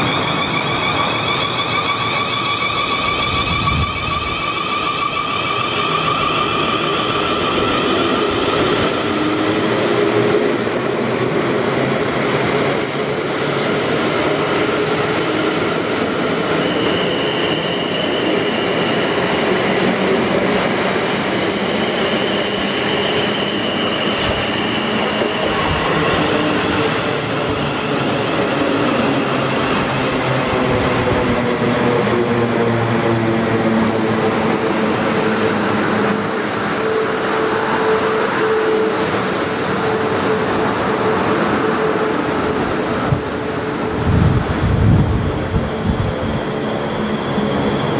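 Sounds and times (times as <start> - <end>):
train wheels rumbling on rails: 0.0 - 47.9.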